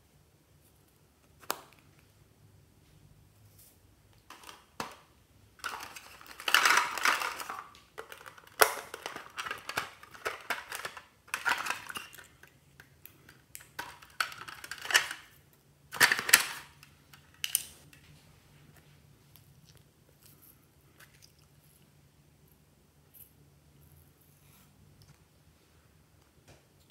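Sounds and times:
plastic toy pieces clicking and rattling: 5.6s - 17.7s.

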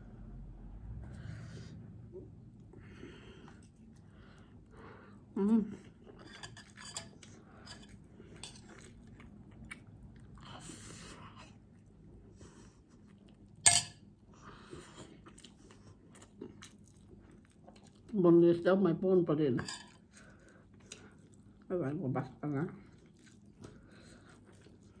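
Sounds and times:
person chewing: 5.8s - 12.2s, 14.6s - 18.1s, 20.0s - 21.7s, 22.8s - 25.0s.

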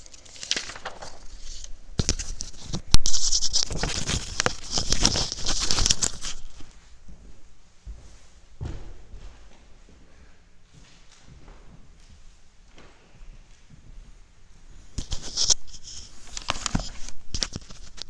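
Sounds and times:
paper sheets rustling: 0.0s - 6.8s, 15.0s - 18.0s.

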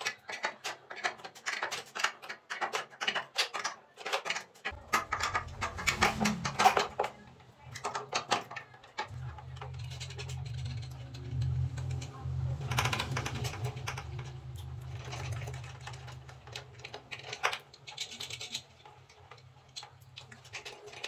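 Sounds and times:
low hum: 4.8s - 7.9s, 9.1s - 17.4s.

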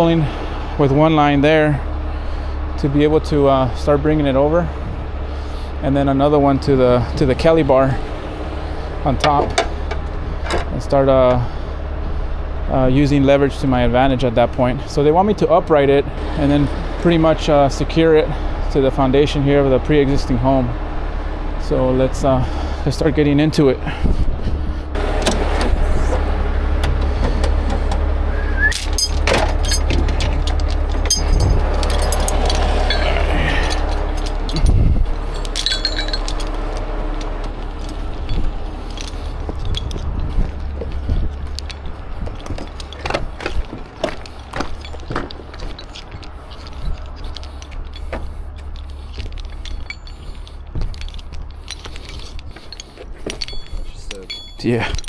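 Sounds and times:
idling truck hum: 0.0s - 55.0s
chains clinking and rattling: 28.6s - 55.0s.

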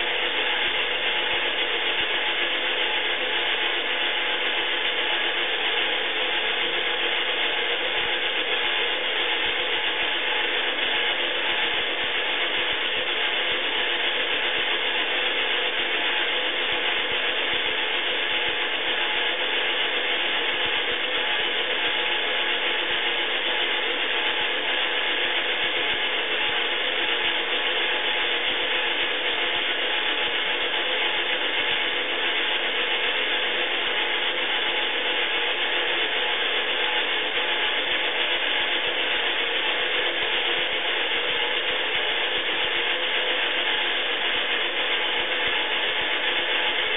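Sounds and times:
toy washing machine running: 10.1s - 46.9s.

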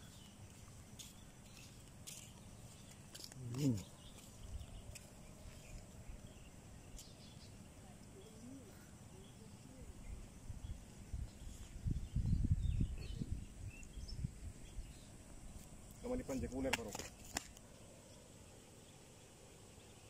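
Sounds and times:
wind gusts on microphone: 10.1s - 15.0s.

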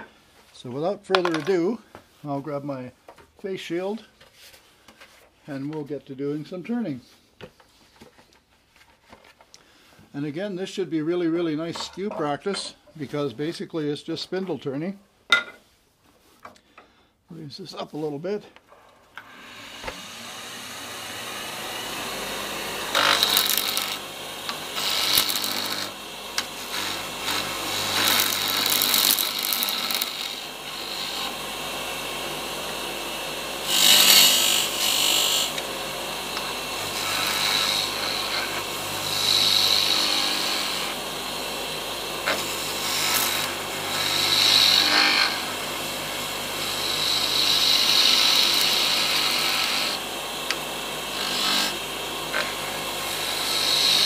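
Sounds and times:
turning tool cutting wood: 19.2s - 54.0s
wood lathe motor hum: 19.2s - 54.0s.

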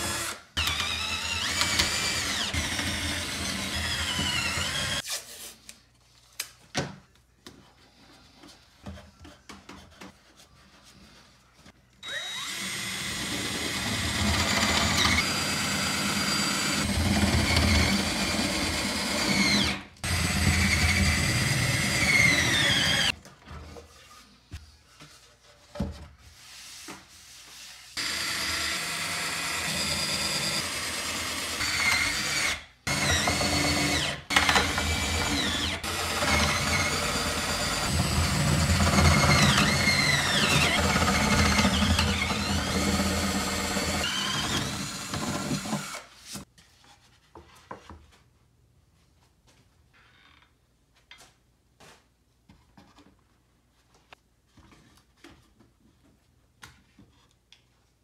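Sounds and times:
cordless drill motor whining: 0.0s - 5.0s, 12.0s - 23.1s, 28.0s - 46.0s.

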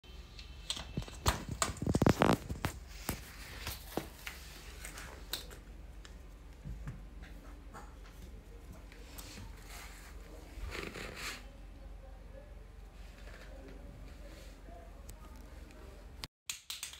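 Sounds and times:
cat playing with plastic ball: 0.9s - 4.0s.

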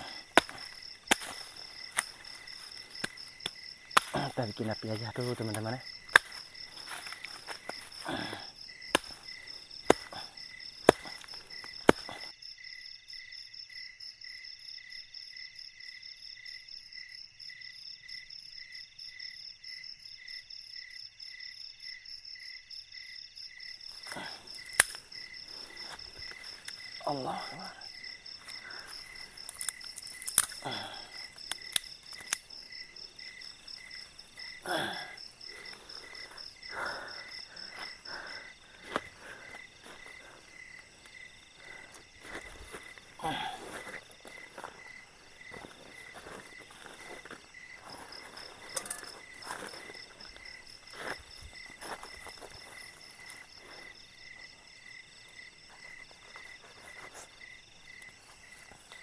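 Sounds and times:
sticks snapping: 0.0s - 4.5s, 5.4s - 12.3s, 24.1s - 26.9s, 28.4s - 32.5s
insect high trill: 0.0s - 12.3s, 23.8s - 59.0s
night insects chirping: 0.0s - 59.0s.

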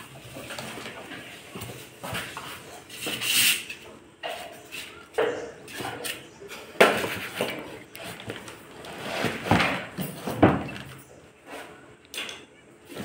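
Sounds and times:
cardboard and plastic rustling: 6.9s - 11.0s.

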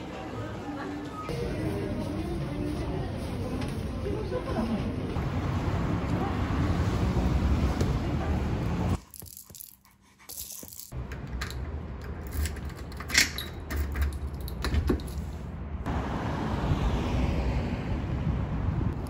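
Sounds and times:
city street traffic: 0.0s - 9.8s, 10.5s - 19.0s
keys jangling: 9.0s - 15.4s
key turning in door lock: 10.4s - 15.2s.

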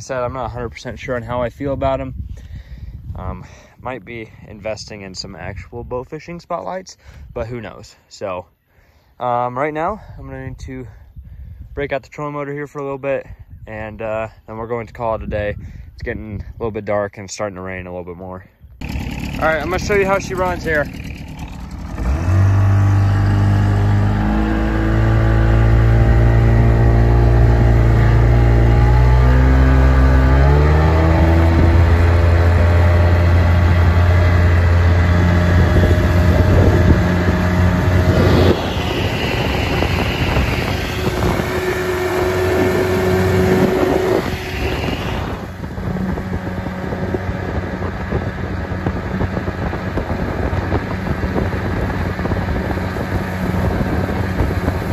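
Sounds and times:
outboard motor revving: 18.8s - 54.9s.

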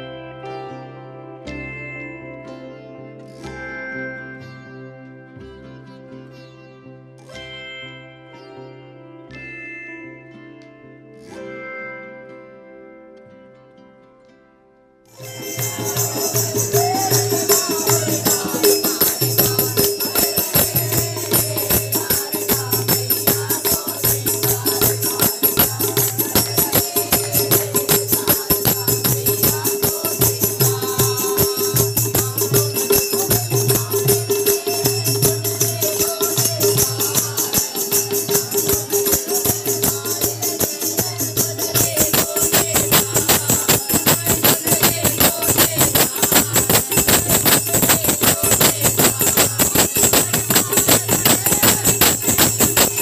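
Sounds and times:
hand cymbals jingling: 15.2s - 53.0s
hand drum beat: 15.2s - 53.0s
men singing together: 15.2s - 53.0s
steady held tone: 15.2s - 53.0s
people clapping: 15.3s - 30.1s, 41.8s - 53.0s.

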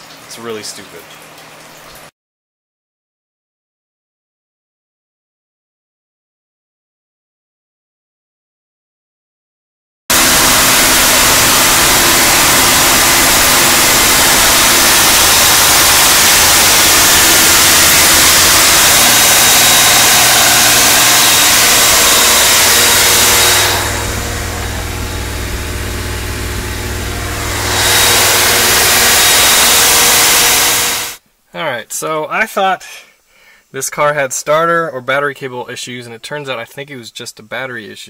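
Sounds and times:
car engine at fast idle: 10.1s - 29.2s.

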